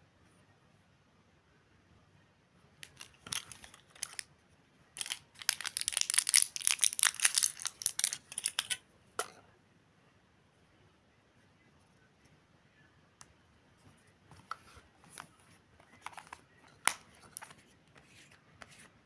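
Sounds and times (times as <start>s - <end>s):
blister pack crinkling: 2.8s - 4.3s, 5.0s - 8.8s.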